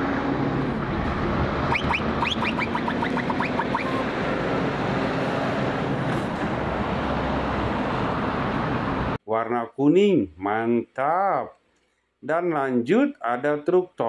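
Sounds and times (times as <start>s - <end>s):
road noise: 0.0s - 9.2s
truck diesel engine passing: 0.0s - 9.2s
short rising chirps: 1.7s - 4.1s.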